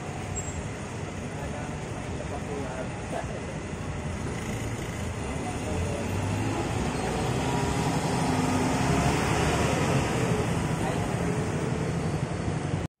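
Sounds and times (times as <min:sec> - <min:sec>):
bus diesel engine passing: 0:00.0 - 0:12.9.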